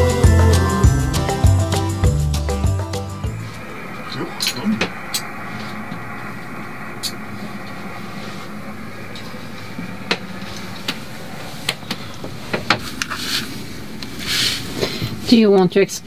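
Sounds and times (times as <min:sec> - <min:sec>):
faint low drone: 0:00.0 - 0:12.4
mechanical hum: 0:00.0 - 0:16.0.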